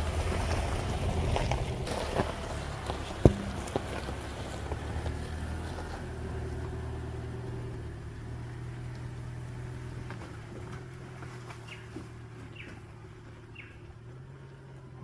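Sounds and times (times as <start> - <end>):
car running with low hum: 0.0 - 15.0
light knocks: 3.2 - 4.0.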